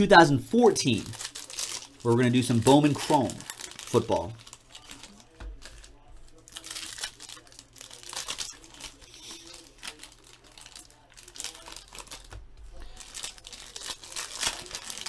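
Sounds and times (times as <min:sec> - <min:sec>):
foil wrappers crinkling: 0:00.8 - 0:15.0
packs being torn open: 0:01.0 - 0:15.0.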